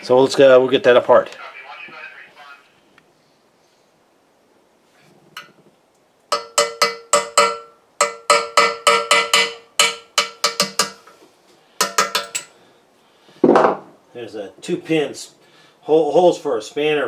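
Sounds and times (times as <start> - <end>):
hammer tapping metal punch: 6.3 - 11.2, 11.8 - 12.5.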